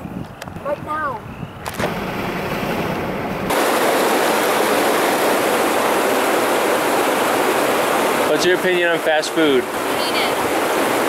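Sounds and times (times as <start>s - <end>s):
car road rumble: 1.7s - 3.6s
rushing hiss of outdoor noise: 3.5s - 11.0s.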